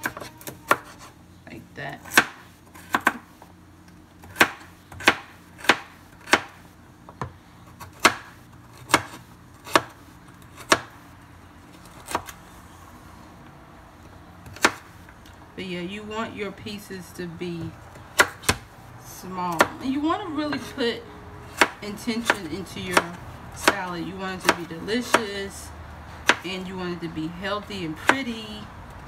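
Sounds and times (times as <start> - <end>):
knife chopping on wooden board: 8.9 - 10.0.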